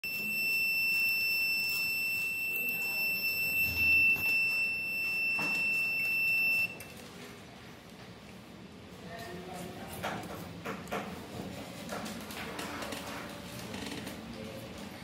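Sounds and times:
high-pitched electronic buzzer: 0.0s - 6.8s.

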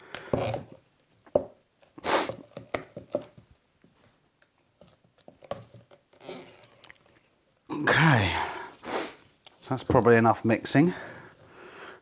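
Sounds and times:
wet squishing of stirred paste: 0.0s - 7.7s.

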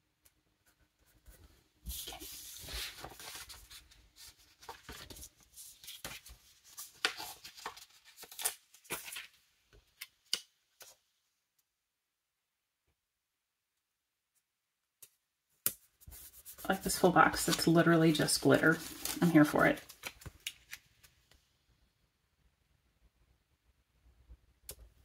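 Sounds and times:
paper rustling and crinkling: 1.1s - 11.0s, 16.0s - 21.3s.

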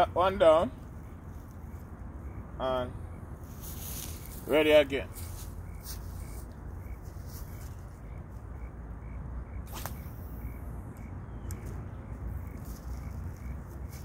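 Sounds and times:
fishing rod swishing: 9.7s - 10.4s.

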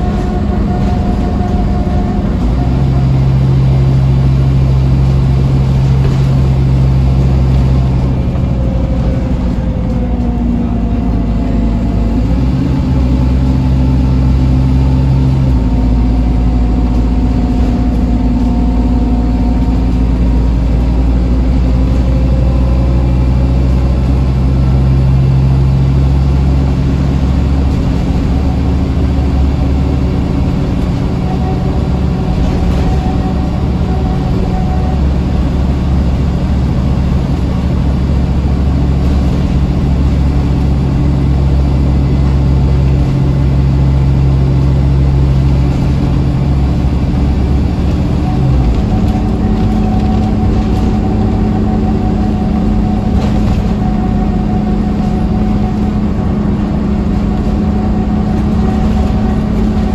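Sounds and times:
diesel bus engine drone: 0.0s - 59.9s.

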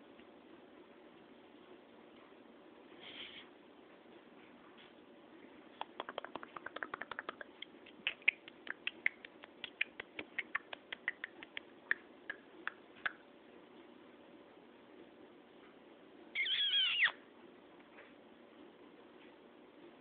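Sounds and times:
mouth clicks and kissing squeaks: 5.8s - 13.2s, 16.4s - 17.2s.

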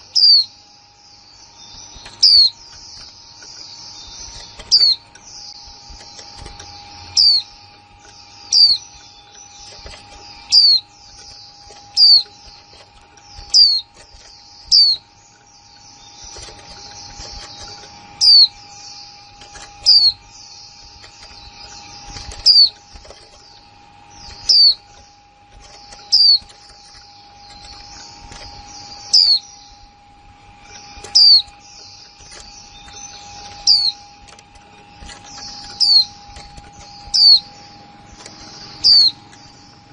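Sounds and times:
soft high twittering: 0.0s - 39.9s.

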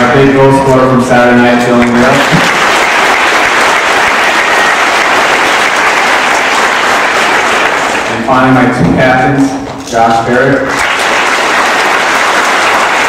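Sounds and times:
audience applauding: 1.7s - 8.3s, 10.7s - 13.0s.

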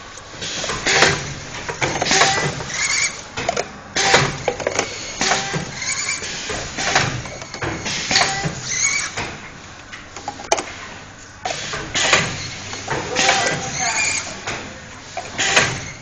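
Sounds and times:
printing machine clanking: 0.4s - 16.0s.

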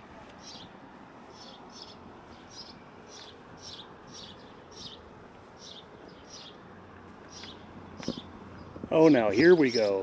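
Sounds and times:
faint steady hum: 0.0s - 10.0s
small bird chirping: 0.4s - 0.7s, 1.3s - 6.6s, 7.3s - 8.9s.

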